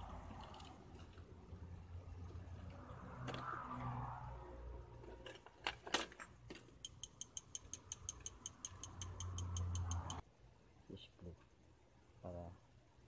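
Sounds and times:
small parts clicking and knocking: 0:05.0 - 0:10.2
rapid even ticking: 0:06.8 - 0:10.2.

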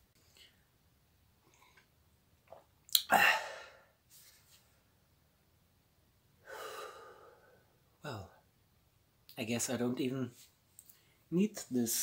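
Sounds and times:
man sneezing: 0:03.1 - 0:03.7
heavy breath out: 0:03.1 - 0:03.9, 0:06.4 - 0:07.7.

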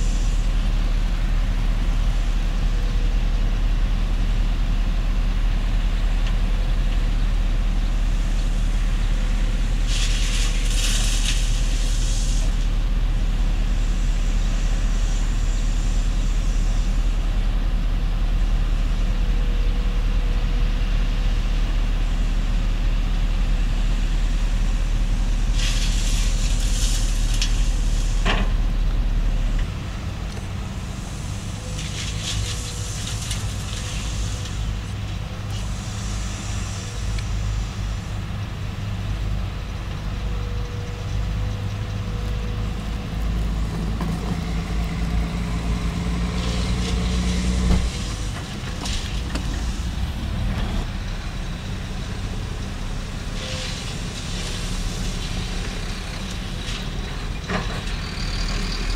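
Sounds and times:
diesel engines running: 0:00.0 - 0:58.9
gravel pouring into metal bed: 0:25.5 - 0:27.6.

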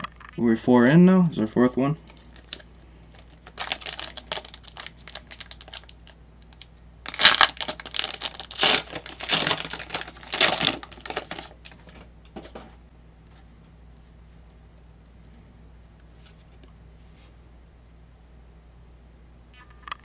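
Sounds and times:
wrapper tearing and crinkling: 0:02.0 - 0:12.0.

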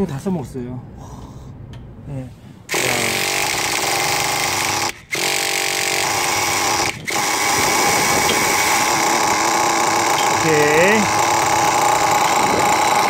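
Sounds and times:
small engine high-pitched buzz: 0:02.7 - 0:13.0.

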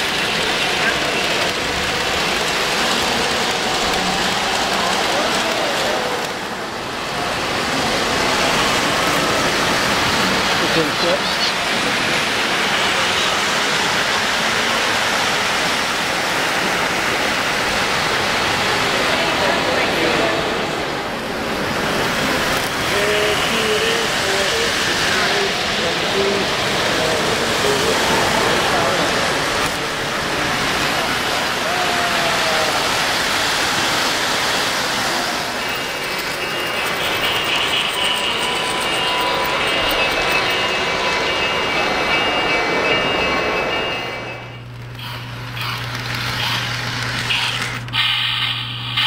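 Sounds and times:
many voices: 0:00.0 - 0:45.8
model trains running: 0:00.0 - 0:49.0
faint high steady tones: 0:35.5 - 0:44.7.

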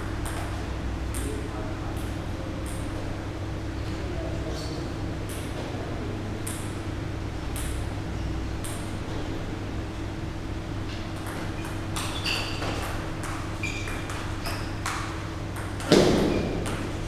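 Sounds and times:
table tennis balls tapping: 0:00.0 - 0:01.4, 0:02.0 - 0:03.1, 0:07.4 - 0:07.9, 0:10.9 - 0:17.0
low electrical hum: 0:00.0 - 0:17.0.

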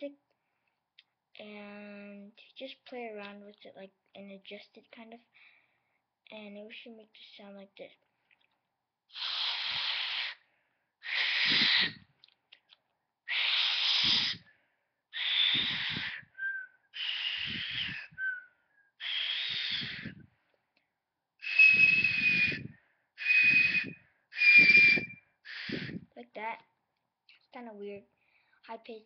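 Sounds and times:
blowing across stretched plastic: 0:09.1 - 0:10.4, 0:11.0 - 0:12.2, 0:13.3 - 0:14.5, 0:15.1 - 0:18.4, 0:19.0 - 0:20.3, 0:21.4 - 0:26.1.

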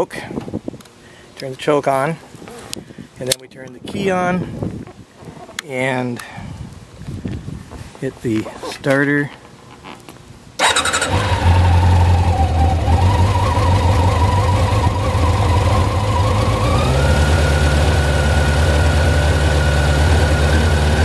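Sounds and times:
motorcycle engine idling: 0:10.6 - 0:21.0.

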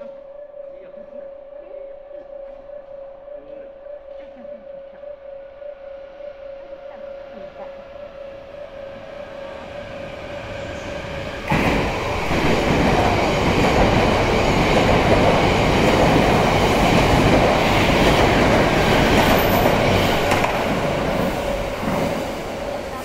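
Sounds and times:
train wheels rumbling on rails: 0:08.9 - 0:23.0.

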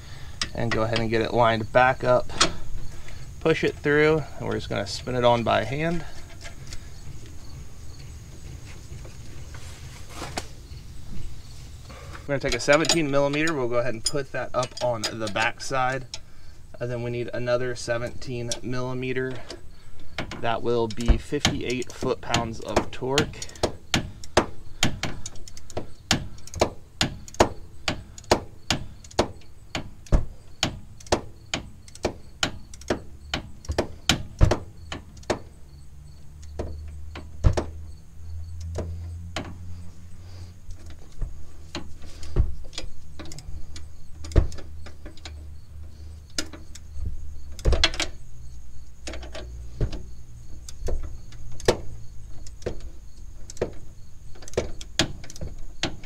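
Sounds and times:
ratchet clicking: 0:23.2 - 0:35.4.

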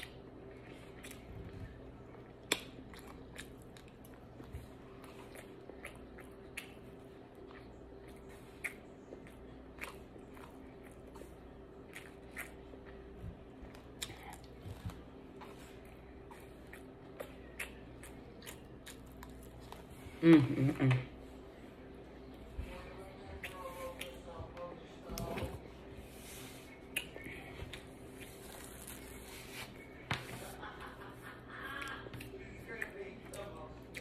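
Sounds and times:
faint steady hum: 0:00.0 - 0:34.0
mouth chewing clicks and smacks: 0:05.1 - 0:13.0, 0:16.3 - 0:19.7, 0:26.9 - 0:27.8.

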